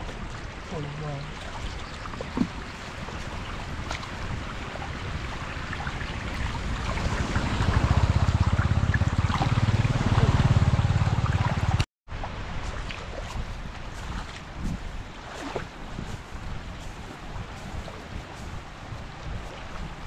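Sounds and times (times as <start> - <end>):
floodwater rushing: 0.0 - 20.0
motorbike engine: 7.0 - 11.8.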